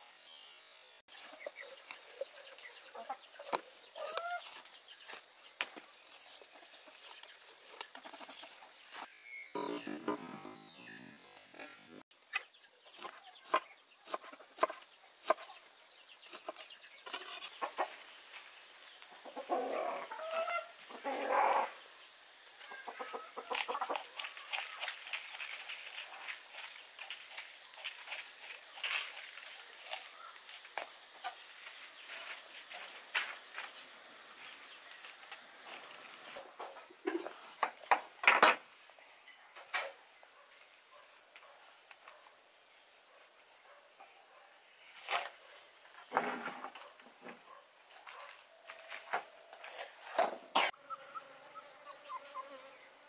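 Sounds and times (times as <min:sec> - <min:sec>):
chickens clucking: 0:01.1 - 0:05.2, 0:06.3 - 0:33.2, 0:35.2 - 0:38.1
crackling aluminium foil: 0:23.5 - 0:33.8.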